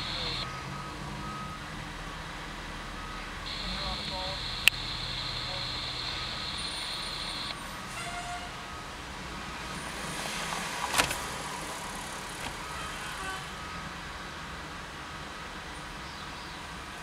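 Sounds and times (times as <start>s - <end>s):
diesel engine running low: 0.0s - 7.7s
short sharp burst: 3.5s - 7.6s.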